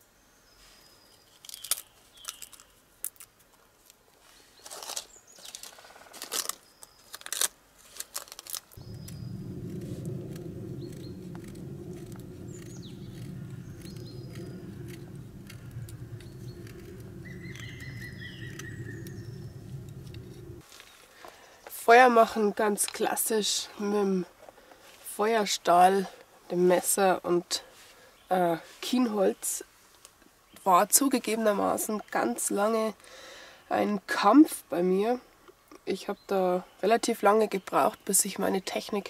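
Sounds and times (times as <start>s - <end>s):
dry rustling and crackling: 4.6s - 21.2s
low rushing noise: 8.8s - 20.6s
sharp clicks: 8.8s - 20.6s
songbirds chirping: 8.8s - 24.8s, 25.4s - 29.6s, 30.3s - 33.0s, 34.8s - 39.0s.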